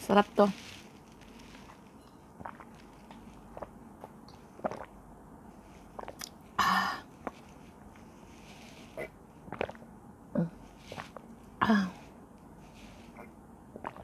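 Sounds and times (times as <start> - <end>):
person gulping and swallowing: 2.4 - 5.0, 6.0 - 7.4, 9.0 - 11.7, 13.2 - 14.0.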